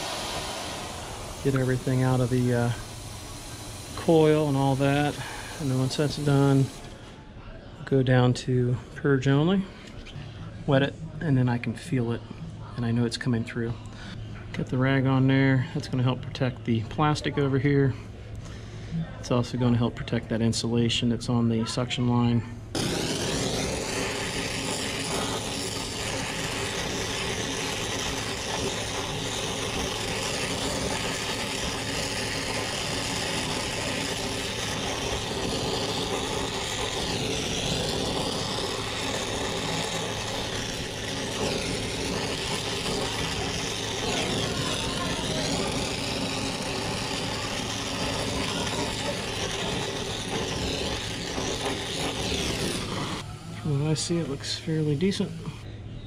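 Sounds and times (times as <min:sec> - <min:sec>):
torch flame hissing: 0:00.0 - 0:07.2, 0:22.7 - 0:55.7.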